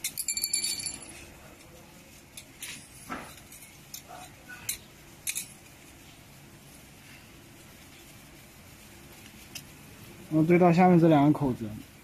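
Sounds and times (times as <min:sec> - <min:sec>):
metal parts clinking: 0:00.0 - 0:01.3.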